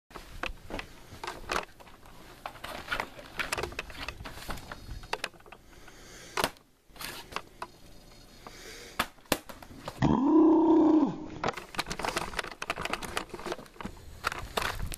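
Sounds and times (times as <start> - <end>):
plastic clicks of laptop handling: 11.4 - 14.9.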